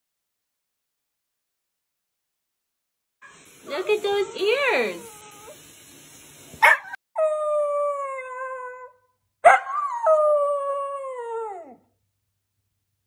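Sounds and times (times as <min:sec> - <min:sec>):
dog howling: 0:06.6 - 0:11.8.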